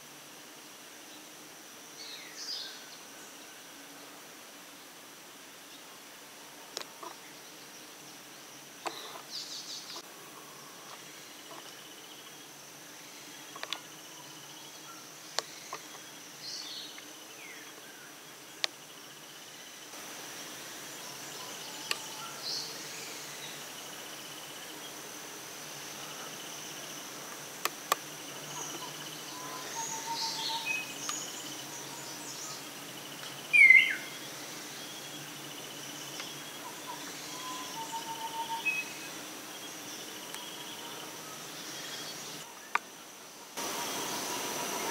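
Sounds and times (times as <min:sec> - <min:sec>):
high insect drone: 0:00.0 - 0:44.9
bird calls and chirps: 0:08.8 - 0:19.0, 0:20.9 - 0:23.8, 0:28.2 - 0:42.9.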